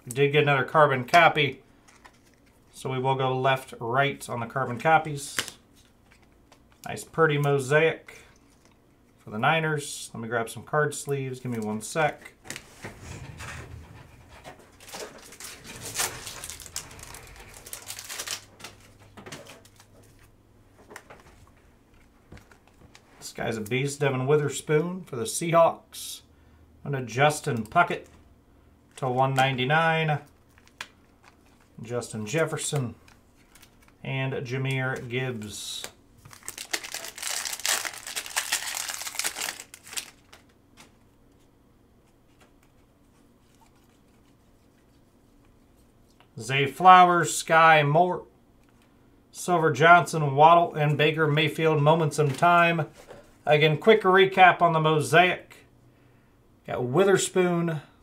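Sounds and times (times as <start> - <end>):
plastic card sleeves rustling: 1.8 - 2.8, 14.7 - 23.1, 28.9 - 46.2
plastic wrapper crinkling and tearing: 14.8 - 20.1, 30.3 - 31.8, 35.8 - 40.6.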